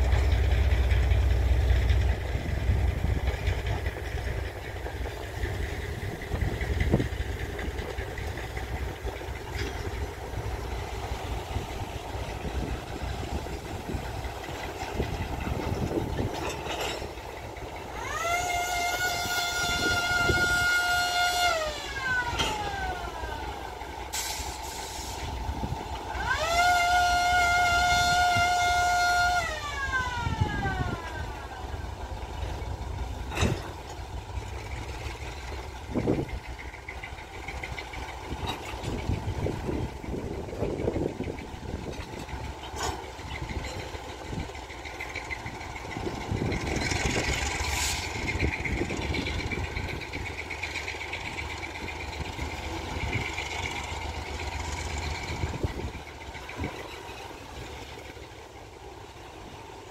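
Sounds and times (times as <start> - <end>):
train cars rumbling on track: 0.0 - 59.9
locomotive air horn blasts: 18.0 - 23.0, 26.1 - 31.2.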